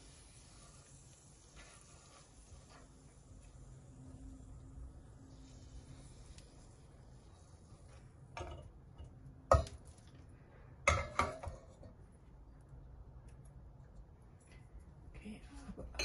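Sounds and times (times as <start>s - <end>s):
spatula scraping and knocking pot: 10.9s - 12.0s.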